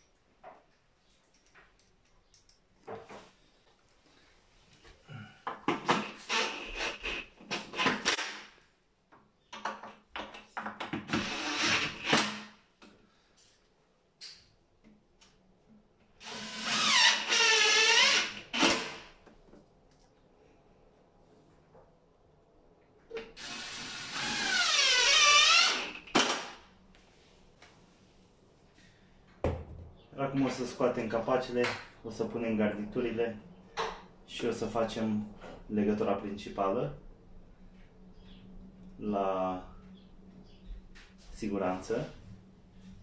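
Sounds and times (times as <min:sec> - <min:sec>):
cordless drill driving screws: 0:16.2 - 0:19.1, 0:23.4 - 0:26.4.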